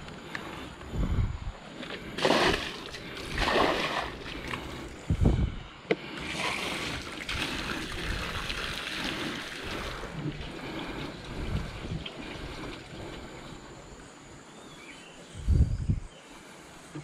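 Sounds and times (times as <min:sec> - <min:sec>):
water splashing and sloshing: 0:01.6 - 0:05.2, 0:05.9 - 0:14.1
rushing water: 0:02.2 - 0:05.0, 0:06.2 - 0:13.9.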